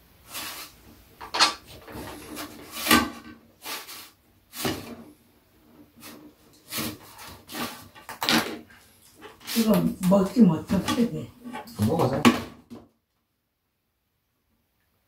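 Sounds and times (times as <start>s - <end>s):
knife scraping and cutting melon: 2.0s - 5.0s, 5.9s - 8.6s.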